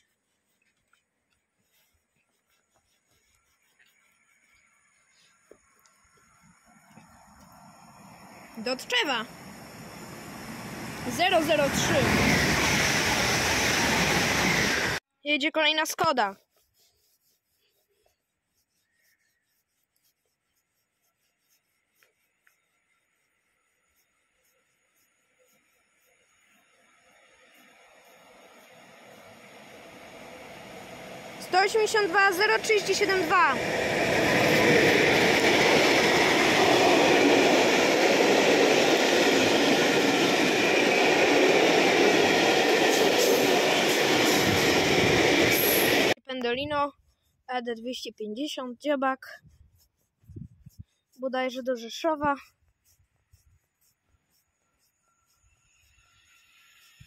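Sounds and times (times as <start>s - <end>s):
train wheels rumbling on rails: 8.5s - 15.0s, 27.6s - 46.2s.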